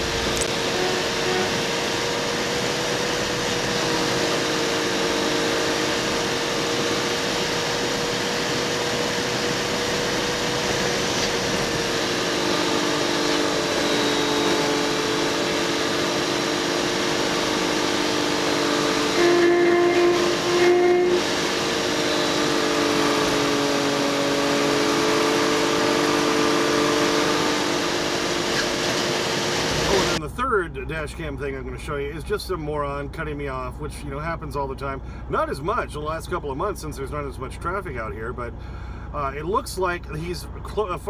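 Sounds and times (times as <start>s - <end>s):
lower drone: 0.0s - 30.2s
sped-up truck engine drone: 0.0s - 41.0s.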